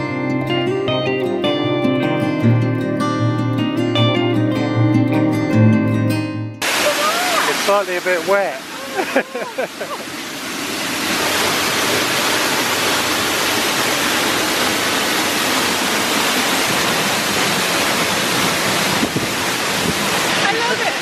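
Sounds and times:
waterfall rushing: 6.6 - 21.0.

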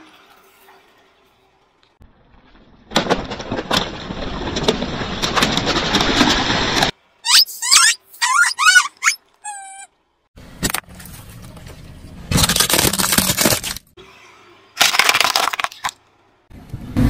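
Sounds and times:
rubber toy balls squeaking: 7.2 - 9.9.

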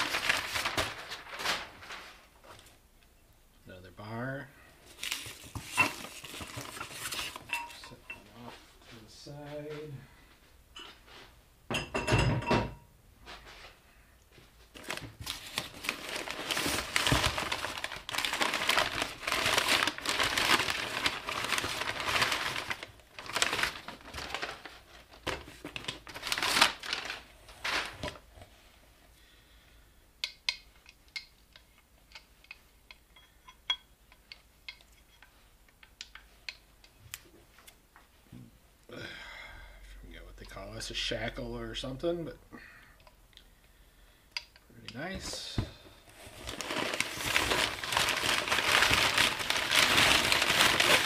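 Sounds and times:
paper rustling and crumpling: 0.0 - 2.7, 4.9 - 7.5, 14.7 - 28.4, 46.1 - 51.0.

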